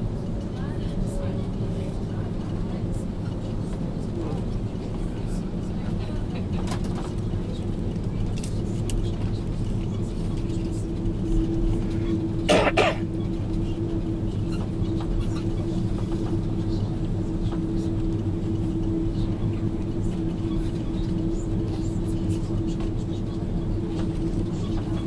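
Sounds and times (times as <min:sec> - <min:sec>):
airplane cabin engine hum: 0:00.0 - 0:25.0
person coughing: 0:12.5 - 0:13.0.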